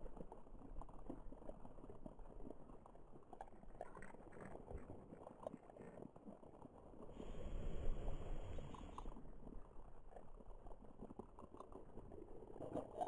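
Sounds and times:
faint crackling and ticking: 0.0s - 13.0s
steady low hum: 7.2s - 9.2s.

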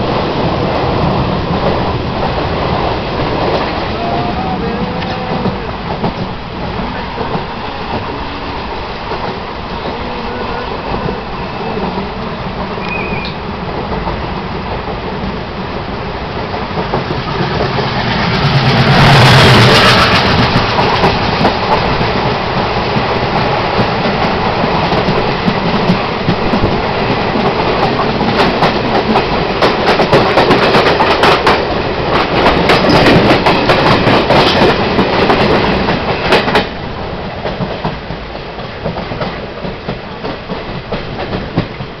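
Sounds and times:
passing train rushing rumble: 0.0s - 42.0s
train wheels clattering over rail joints: 12.6s - 42.0s.

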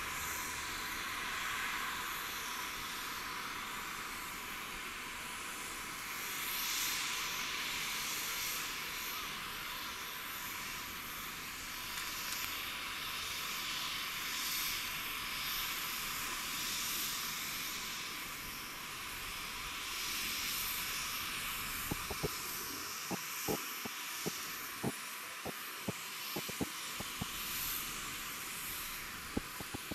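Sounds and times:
sharp clicks: 26.4s - 27.3s.

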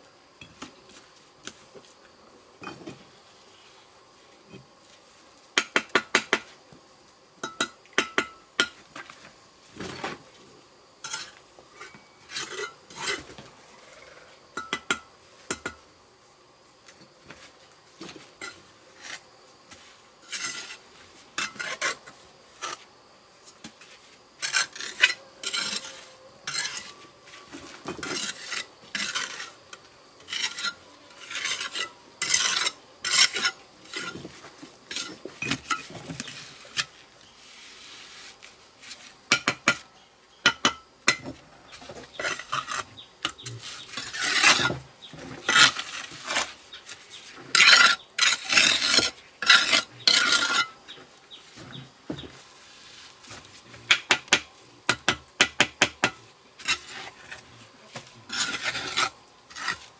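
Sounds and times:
trowel scraping mortar: 20.2s - 20.8s, 21.4s - 22.8s, 24.4s - 27.0s, 27.9s - 29.6s, 30.2s - 34.3s, 42.0s - 50.8s, 56.6s - 57.5s, 58.2s - 59.9s.

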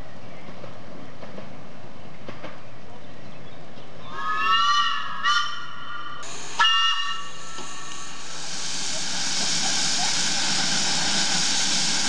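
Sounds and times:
approaching train noise: 3.9s - 12.0s
steam locomotive whistle: 4.1s - 12.0s.

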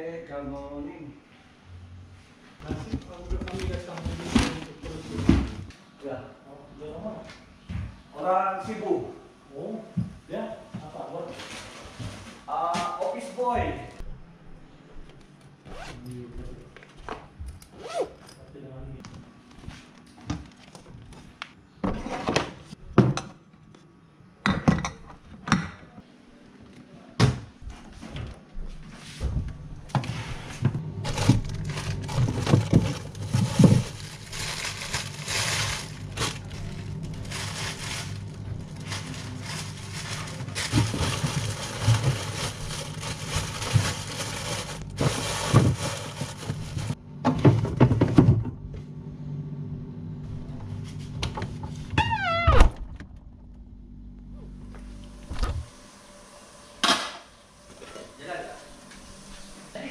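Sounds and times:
plastic bag rustling: 2.6s - 5.6s, 31.0s - 47.0s
steady low hum: 26.0s - 52.0s, 52.6s - 59.9s.

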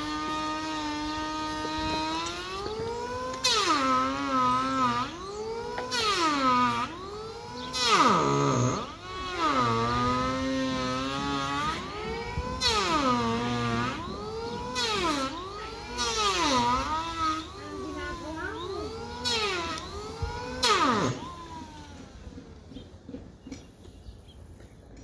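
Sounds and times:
power tool whining into timber: 0.0s - 23.9s.

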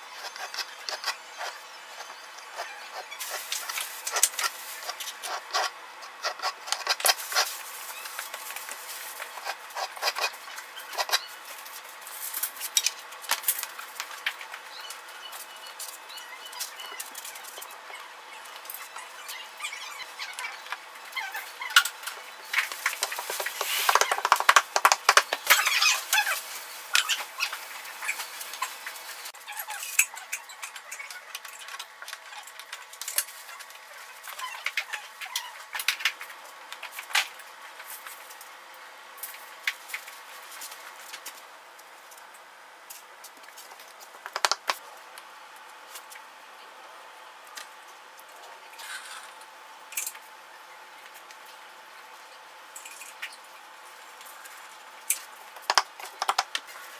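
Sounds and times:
mosaic tiles clicking and tapping: 23.0s - 25.4s, 44.2s - 44.8s, 55.7s - 56.6s.

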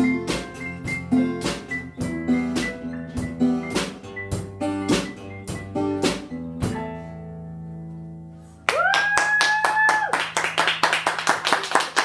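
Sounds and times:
high whooping cheer: 8.7s - 10.5s
audience clapping: 8.7s - 12.0s.

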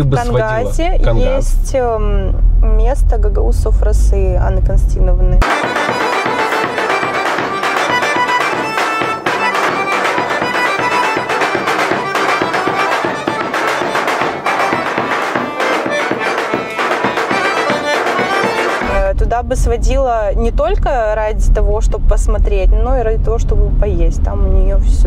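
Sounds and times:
accordion melody: 0.0s - 1.6s, 5.4s - 19.1s
large drum beat: 5.4s - 19.8s.

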